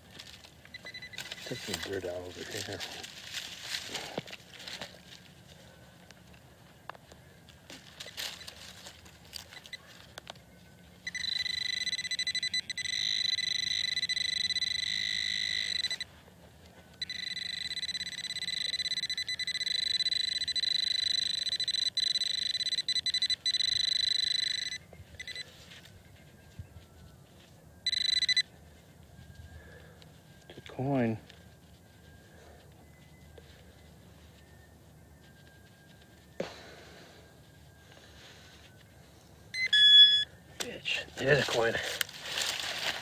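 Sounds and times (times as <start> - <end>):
soil scraping and clicks: 0.0 - 5.3, 40.6 - 43.0
high alert tone: 11.1 - 16.1, 17.0 - 25.4, 27.9 - 28.4, 39.6 - 40.3.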